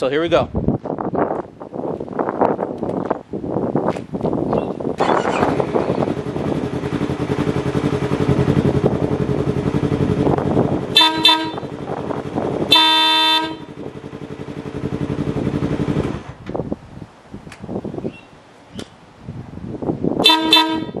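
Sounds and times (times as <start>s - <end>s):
motorcycle engine idling: 5.2s - 16.4s
electric air horn blasts: 10.9s - 11.8s, 12.7s - 13.8s, 20.2s - 21.0s.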